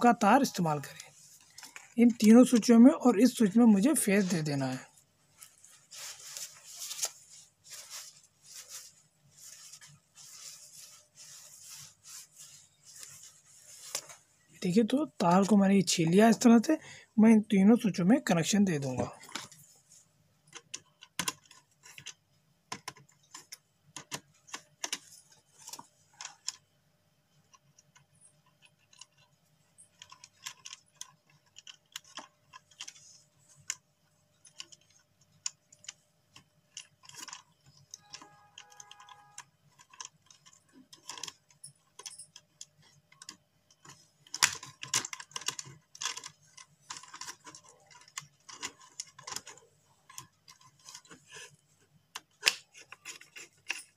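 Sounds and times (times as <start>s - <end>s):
screwdriver clicks and scrapes: 52.2s - 53.9s.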